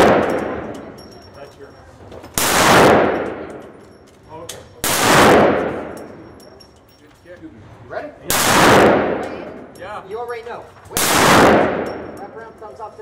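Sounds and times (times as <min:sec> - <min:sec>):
pistol shots echoing indoors: 0:00.0 - 0:00.8, 0:02.4 - 0:03.6, 0:04.8 - 0:06.2, 0:08.3 - 0:09.6, 0:10.9 - 0:12.2.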